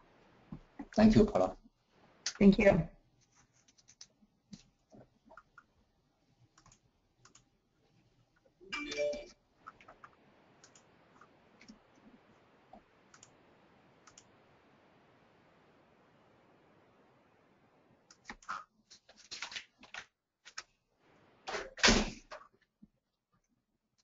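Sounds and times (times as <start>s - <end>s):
keyboard and mouse clicks: 3.6s - 5.7s, 6.6s - 7.5s, 8.8s - 11.8s, 12.7s - 13.4s, 14.0s - 14.3s, 18.1s - 18.6s.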